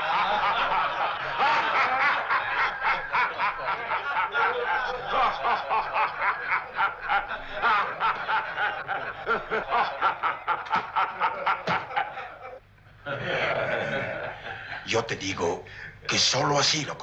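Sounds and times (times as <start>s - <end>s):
men laughing: 0.0s - 15.0s.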